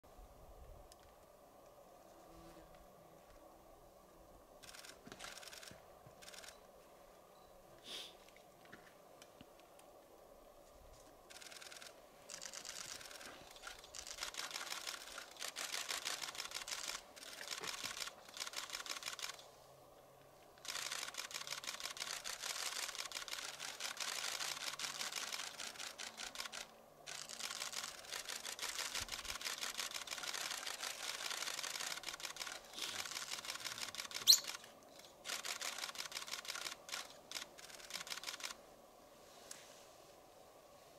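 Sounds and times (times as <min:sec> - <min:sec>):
rapid dense clicking: 0:11.3 - 0:19.4, 0:20.6 - 0:38.6.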